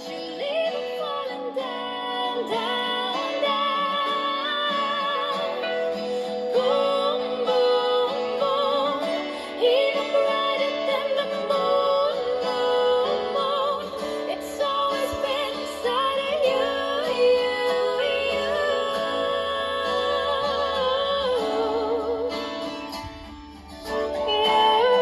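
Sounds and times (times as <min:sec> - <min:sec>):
song with wavering held notes: 0:00.0 - 0:25.0.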